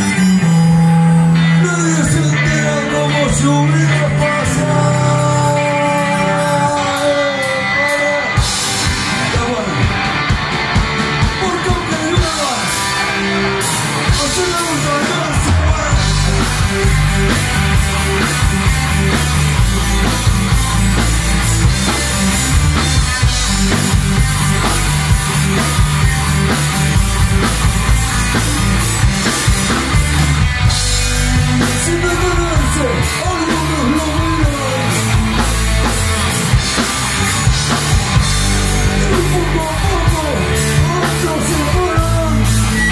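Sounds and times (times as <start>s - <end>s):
live rock band playing: 0.0s - 42.9s
person singing: 1.4s - 8.6s, 31.4s - 35.4s.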